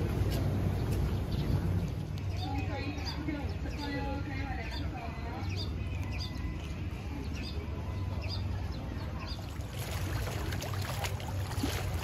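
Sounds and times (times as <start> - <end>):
lapping water: 9.3 - 12.0.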